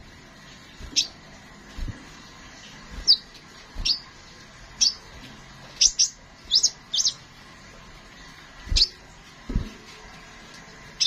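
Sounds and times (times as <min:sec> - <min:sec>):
bird chirping: 0:03.0 - 0:04.2, 0:04.8 - 0:05.1, 0:05.7 - 0:07.3, 0:08.7 - 0:09.0.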